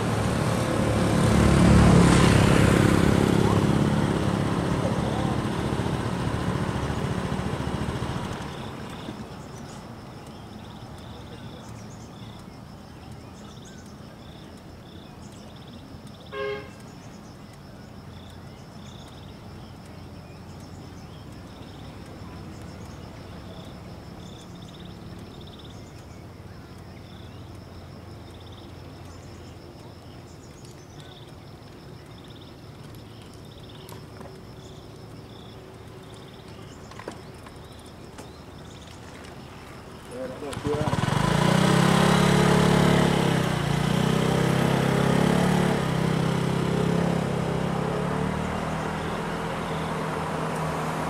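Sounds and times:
faint repeating chirps: 8.4 - 36.8
horn toot: 16.3 - 16.8.

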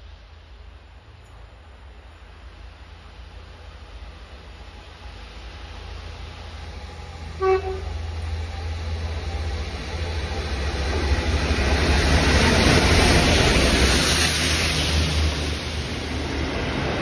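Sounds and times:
diesel locomotive passing: 0.0 - 17.0
locomotive horn toot: 7.4 - 7.9.

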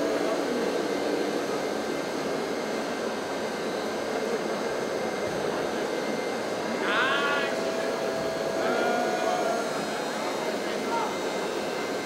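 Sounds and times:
crowd murmur in a hall: 4.0 - 12.0.

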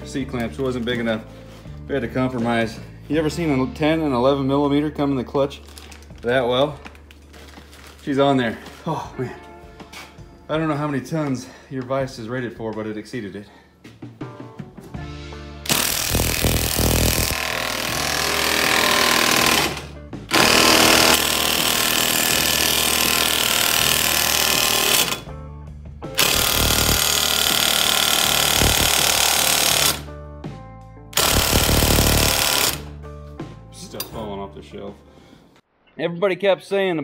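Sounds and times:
background music: 0.0 - 37.0
impact wrench hammering: 15.7 - 25.3, 26.2 - 30.0, 31.2 - 32.9.

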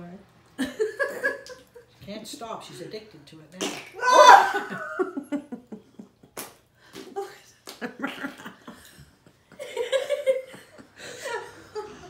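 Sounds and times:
women laughing: 4.1 - 6.3, 7.2 - 12.0.

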